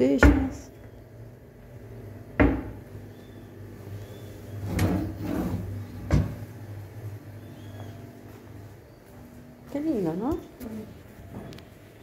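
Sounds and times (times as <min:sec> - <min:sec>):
cabinet door knocking: 0:02.4 - 0:02.8.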